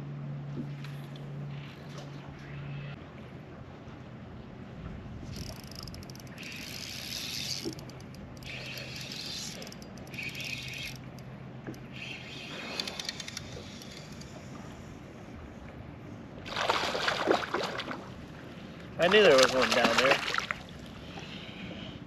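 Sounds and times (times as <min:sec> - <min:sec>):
low steady hum: 0:00.0 - 0:22.0
fishing reel whirring and clicking: 0:05.3 - 0:14.4.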